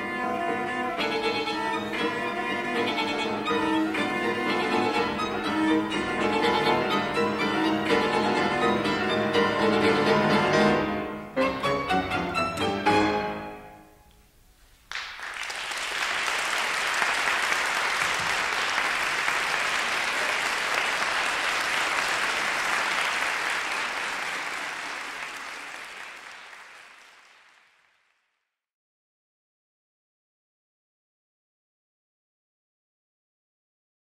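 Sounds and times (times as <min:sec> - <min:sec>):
piano trio playing chords: 0:00.7 - 0:13.9
audience applause: 0:14.9 - 0:28.3.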